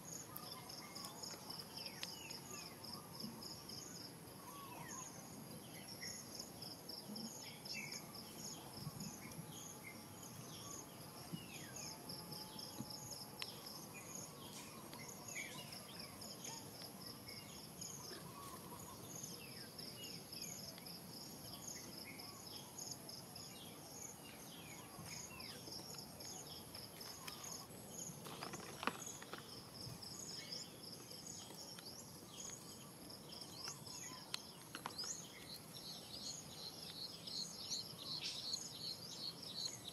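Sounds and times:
insects chirping in high pulses: 0:00.0 - 0:39.9.

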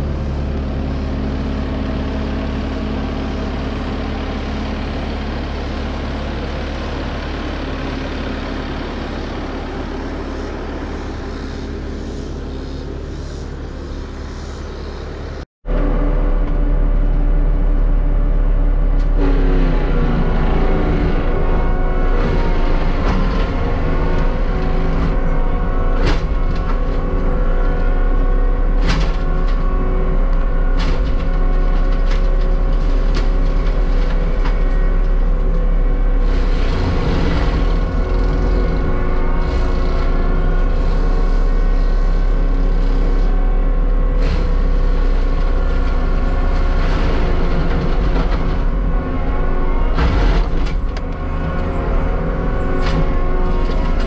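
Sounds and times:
heavy diesel machine running: 0:00.0 - 0:54.0.

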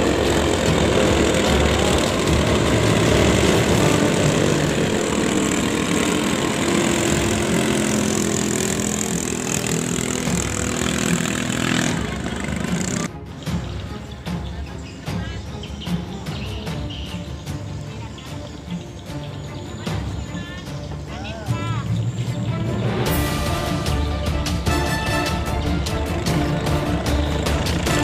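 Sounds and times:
boat engines buzzing: 0:00.0 - 0:28.0.

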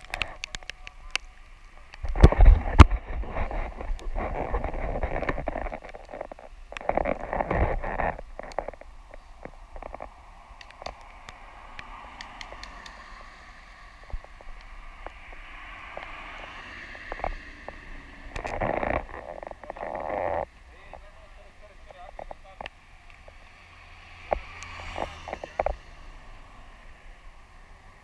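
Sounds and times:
scattered clicks: 0:00.0 - 0:13.4, 0:16.9 - 0:23.4
wind buffeting microphone: 0:02.0 - 0:19.7.

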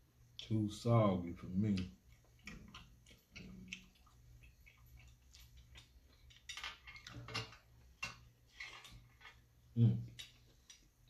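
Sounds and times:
wet mouth clicks chewing: 0:02.1 - 0:06.4.

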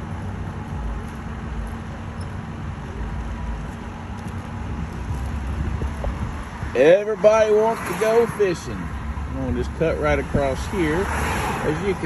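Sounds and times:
constant low hum: 0:00.0 - 0:07.7
truck engines rumbling: 0:00.0 - 0:12.0.

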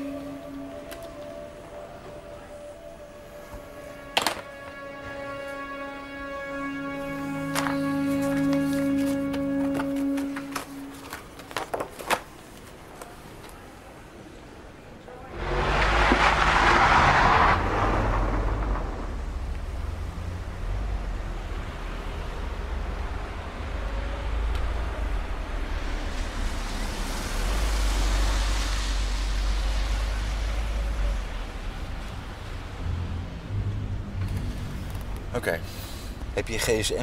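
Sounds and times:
car engine rumble: 0:15.2 - 0:36.4.

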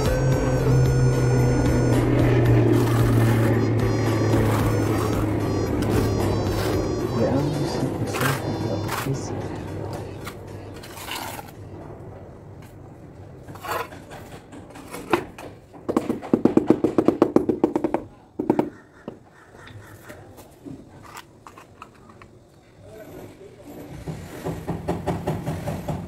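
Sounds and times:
rubber mallet knocking on tile: 0:15.9 - 0:18.7.

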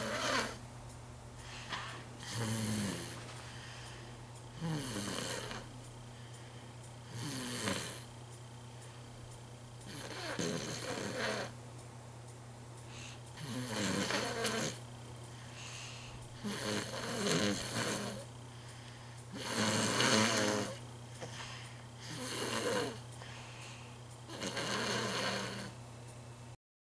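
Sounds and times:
toddler snoring: 0:00.0 - 0:00.6, 0:01.5 - 0:03.7, 0:04.6 - 0:05.7, 0:07.1 - 0:08.1, 0:09.8 - 0:11.6, 0:12.9 - 0:14.8, 0:15.4 - 0:18.3, 0:19.3 - 0:23.4, 0:24.3 - 0:25.8
steady low hum: 0:00.0 - 0:26.6.

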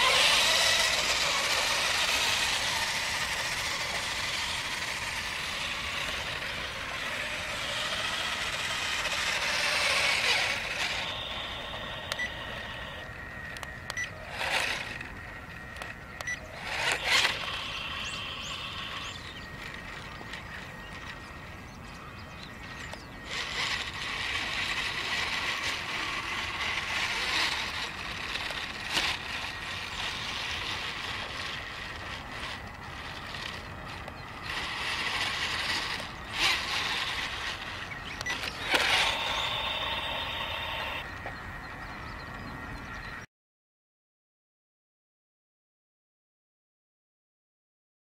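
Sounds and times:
toy motorcycle motor whirring: 0:00.0 - 0:41.4
sharp clicks: 0:12.0 - 0:12.4, 0:38.1 - 0:41.4.

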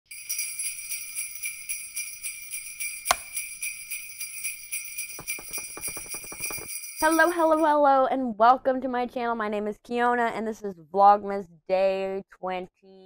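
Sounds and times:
jingle bells shaking: 0:00.1 - 0:07.7.

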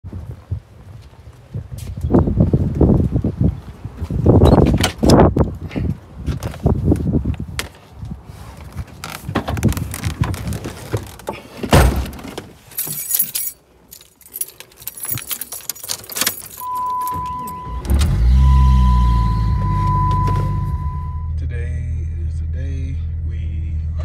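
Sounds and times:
thump: 0:11.7 - 0:12.3
keys jangling: 0:12.7 - 0:17.7
car engine starting and running: 0:14.8 - 0:24.0
electronic warning chime: 0:16.6 - 0:21.4.

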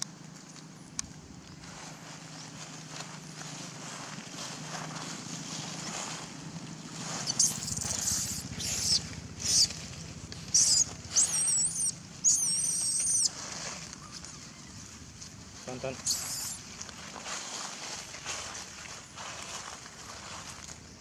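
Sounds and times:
infant monkey squealing and screaming: 0:07.2 - 0:09.8, 0:10.5 - 0:13.3, 0:13.9 - 0:14.9, 0:16.0 - 0:16.6.

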